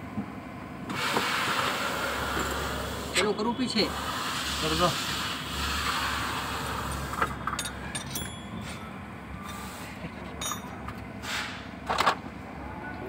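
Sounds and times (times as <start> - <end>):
metallic clicks and clinks: 7.5 - 8.6, 10.4 - 11.0.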